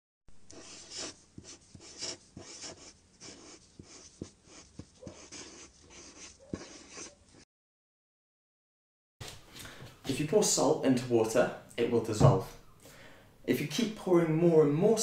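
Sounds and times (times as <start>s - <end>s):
pen scratching on paper: 0.5s - 7.4s.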